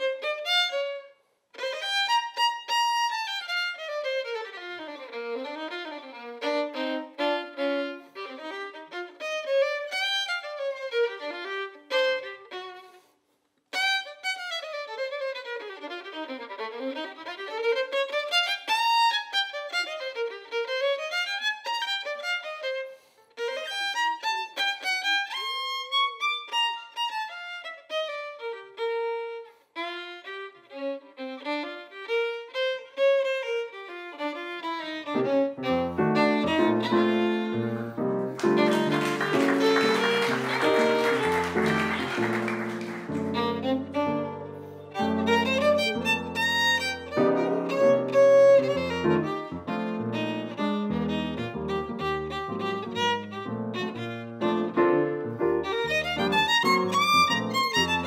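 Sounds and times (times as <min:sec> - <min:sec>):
jazz violin fast runs: 0:13.8 - 0:58.0.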